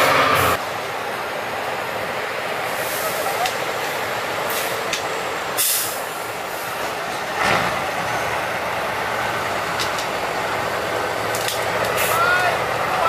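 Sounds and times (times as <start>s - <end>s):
truck engine running under load: 0.0s - 13.0s
truck pushing through brush: 2.6s - 13.0s.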